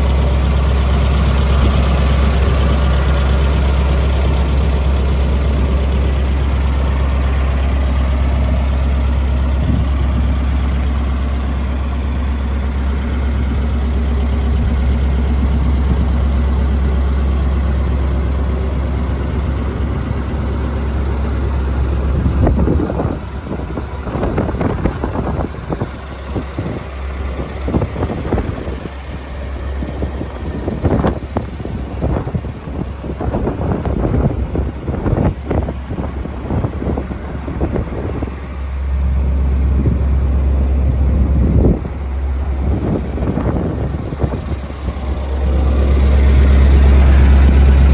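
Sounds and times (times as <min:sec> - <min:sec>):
gusty wind: 0:00.0 - 0:47.9
truck engine idling: 0:00.0 - 0:47.9.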